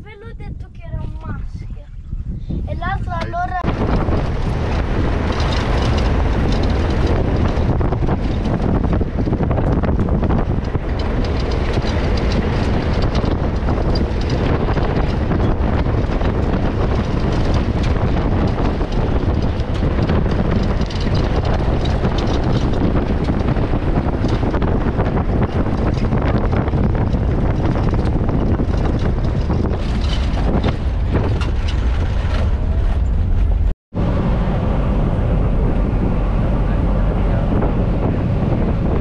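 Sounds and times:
vehicle rumbling: 0.0s - 39.0s
wind buffeting microphone: 0.0s - 39.0s
vehicle body rattling: 2.8s - 39.0s.

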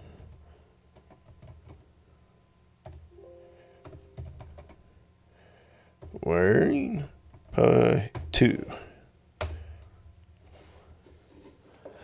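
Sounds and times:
keystrokes on computer keyboard: 0.0s - 1.9s, 2.8s - 3.1s, 3.8s - 4.8s, 9.4s - 9.9s.

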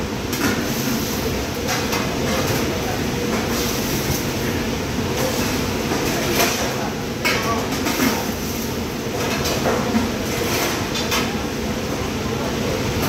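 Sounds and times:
kitchen ventilation noise: 0.0s - 13.0s
plates and utensils clattering: 5.1s - 8.4s, 9.1s - 11.4s.

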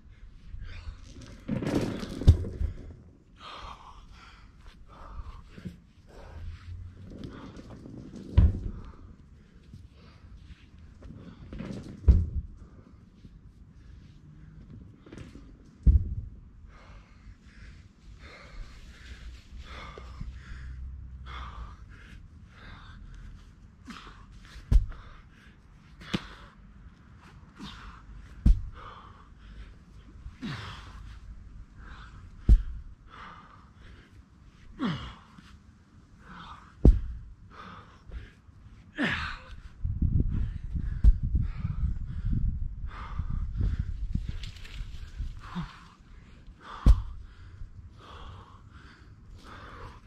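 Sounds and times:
heavy ball thudding on grass: 15.8s - 16.3s, 24.6s - 25.0s, 28.4s - 28.8s, 32.4s - 32.9s, 36.8s - 37.2s, 46.7s - 47.2s
hard breathing and grunts: 27.5s - 35.4s.

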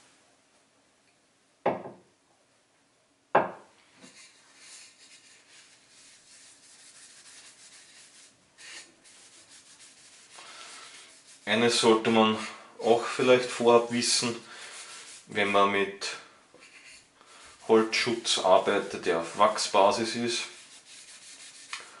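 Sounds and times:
cloth rubbing wood: 4.0s - 11.9s, 13.4s - 15.6s, 16.6s - 21.8s.

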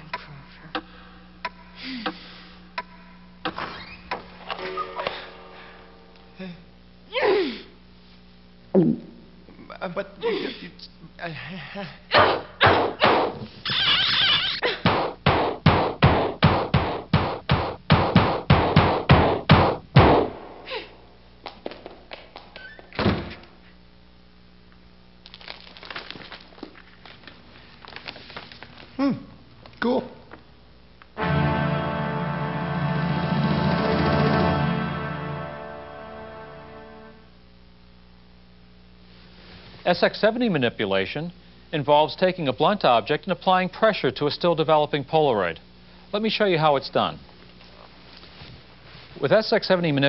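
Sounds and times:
steady low hum: 0.0s - 13.7s, 26.4s - 50.0s
heavy stomps on wooden floor: 14.9s - 20.3s.

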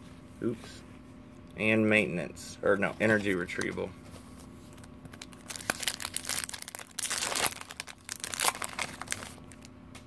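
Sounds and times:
foil wrapper tearing and crinkling: 4.8s - 9.7s.

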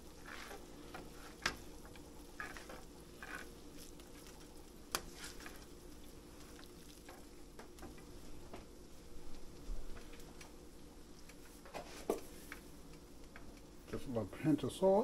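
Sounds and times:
spoon scraping in frying pan: 0.0s - 5.7s
light sizzle: 0.0s - 15.0s.

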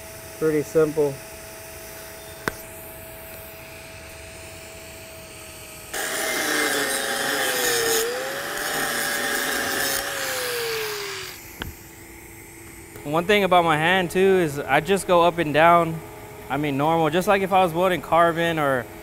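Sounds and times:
angle grinder grinding metal: 5.9s - 11.5s.

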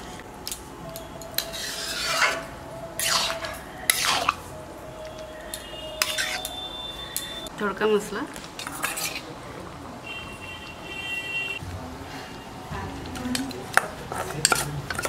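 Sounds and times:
utensil scraping a cooking pan: 1.4s - 4.4s, 6.0s - 6.5s, 8.6s - 9.3s.

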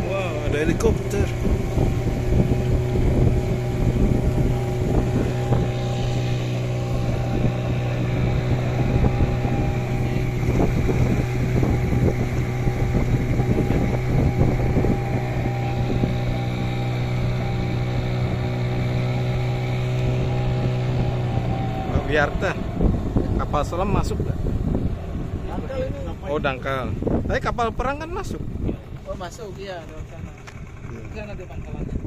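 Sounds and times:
outboard engine drone: 0.0s - 32.0s
wind buffeting microphone: 0.0s - 32.0s.

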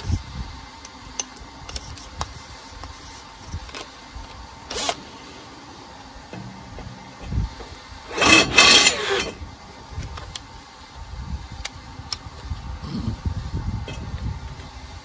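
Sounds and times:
drill boring into steel: 4.7s - 5.0s, 8.1s - 9.4s.

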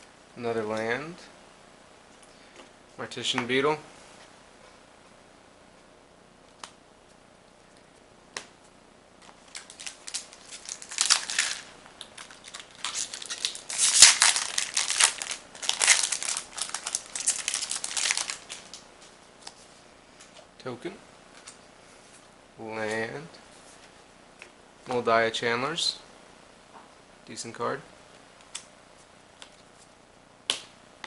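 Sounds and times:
foil wrapper crinkling: 9.2s - 18.8s.

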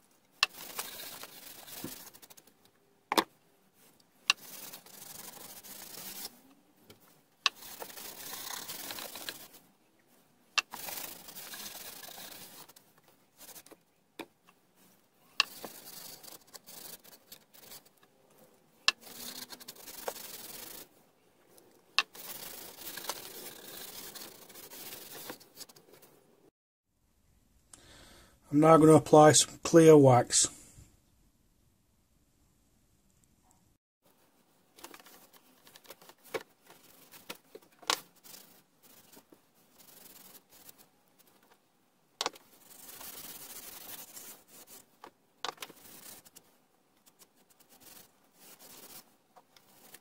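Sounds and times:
cloth rag rubbing wood: 0.4s - 2.4s, 3.8s - 6.5s, 7.5s - 9.6s, 10.6s - 13.7s, 15.4s - 17.9s, 19.0s - 20.9s, 22.1s - 25.8s, 34.8s - 41.4s, 42.3s - 44.9s.

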